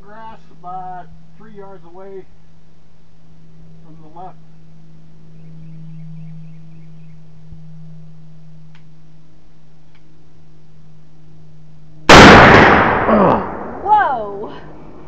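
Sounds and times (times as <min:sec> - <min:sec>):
low hum: 0:00.0 - 0:15.0
rifle shot: 0:12.1 - 0:13.9.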